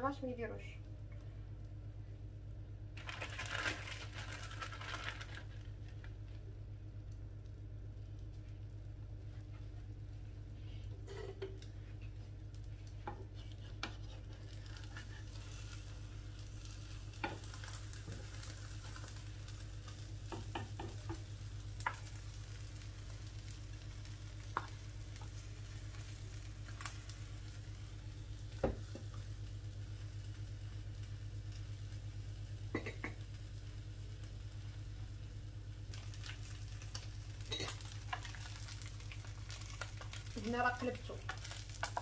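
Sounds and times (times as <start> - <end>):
steady low hum: 0.0 - 42.0
omelette frying in a pan: 1.5 - 42.0
spatula knocking against pan: 20.3 - 21.2.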